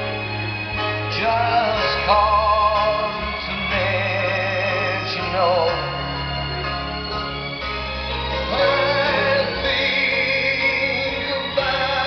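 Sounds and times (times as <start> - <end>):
organ-like backing: 0.0 - 12.0
man singing with vibrato: 1.0 - 6.6, 8.3 - 12.0.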